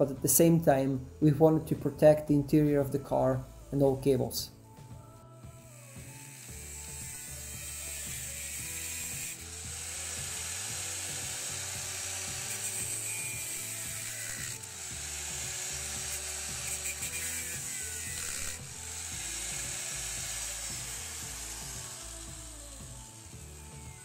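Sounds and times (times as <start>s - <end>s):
angle grinder grinding steel: 5.5s - 24.0s.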